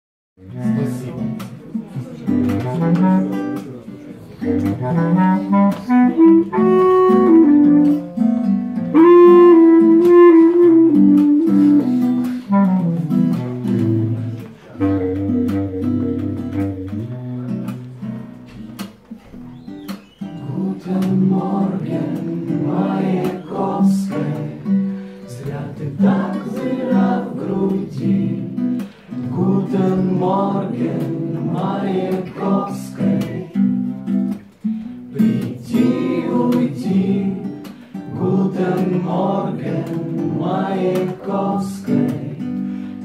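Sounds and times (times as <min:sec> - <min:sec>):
strummed acoustic guitar: 0:00.4 - 0:43.0
bass clarinet melody: 0:02.6 - 0:03.6, 0:04.4 - 0:14.2, 0:14.8 - 0:17.7.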